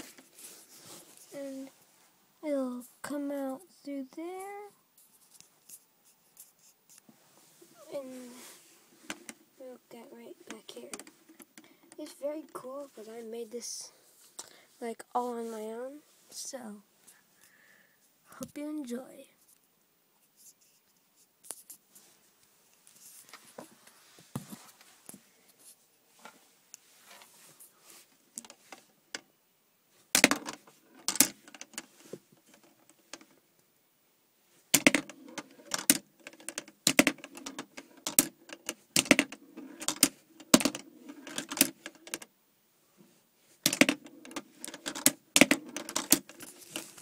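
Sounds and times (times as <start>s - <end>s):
plastic lego pieces clicking: 34.8s - 42.2s, 43.6s - 46.8s.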